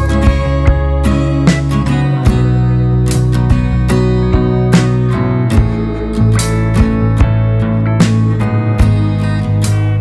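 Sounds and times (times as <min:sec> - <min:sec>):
acoustic guitar strumming chords: 0:00.0 - 0:10.0.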